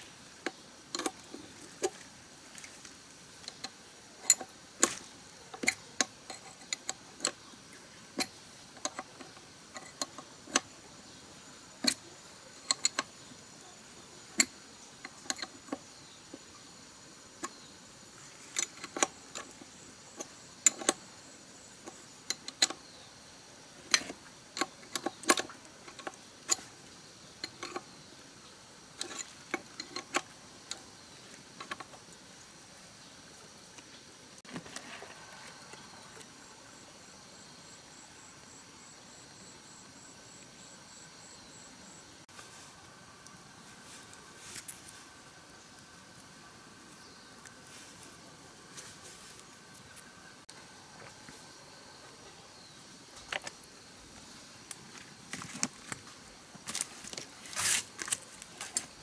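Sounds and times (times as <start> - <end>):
metallic clicks of hand tools: 3.4 - 7.4, 11.8 - 13.2, 18.5 - 21.1, 21.8 - 22.8, 23.9 - 26.7, 27.4 - 27.9.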